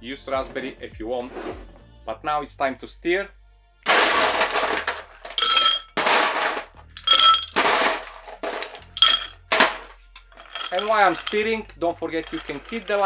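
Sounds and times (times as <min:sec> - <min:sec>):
ice cubes clinking in glass: 0:03.9 - 0:09.8, 0:10.4 - 0:11.5, 0:12.2 - 0:13.0
glass ringing: 0:05.4 - 0:06.0, 0:07.0 - 0:07.6, 0:09.0 - 0:09.5, 0:10.4 - 0:11.5.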